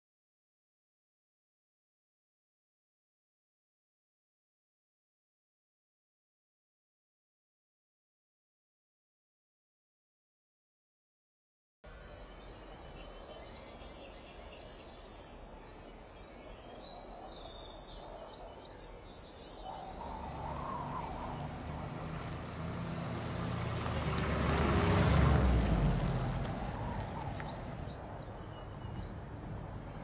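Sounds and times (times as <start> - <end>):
faint birds chirping: 11.9 - 30.0
car passing by: 19.7 - 30.0.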